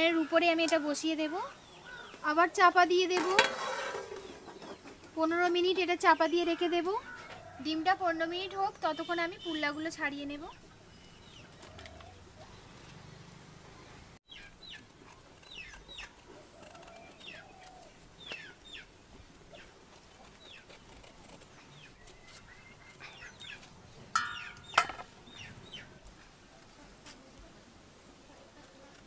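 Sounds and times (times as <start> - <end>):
chickens chirping: 4.1 - 5.1, 10.5 - 12.9, 21.6 - 27.1.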